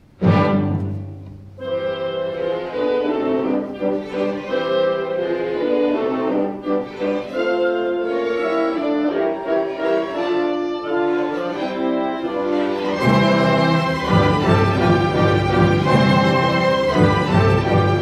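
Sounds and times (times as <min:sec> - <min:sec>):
orchestral music with bowed strings: 0:00.0 - 0:18.0.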